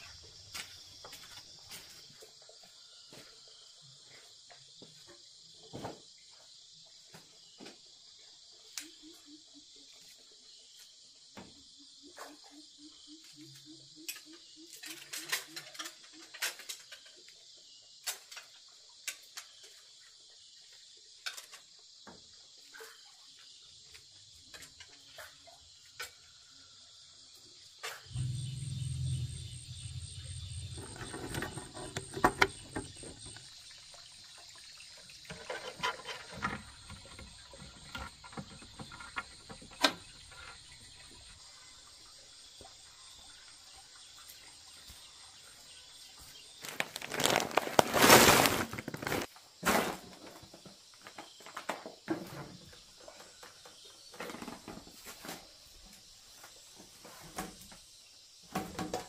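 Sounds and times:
insect chorus: 0.0 - 59.0
rustling handling noise: 46.6 - 49.3.

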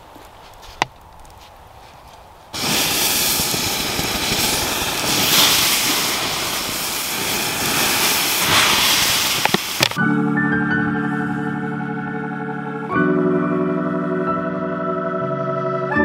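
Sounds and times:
embers hissing into steam: 0.0 - 10.0.

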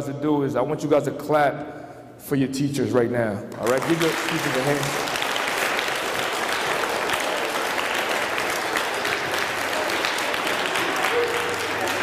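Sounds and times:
children applauding: 3.6 - 12.0.

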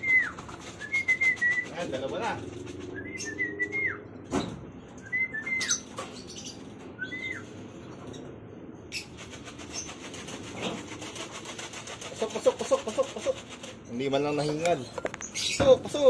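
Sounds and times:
pigeon wing flaps: 0.0 - 3.0.

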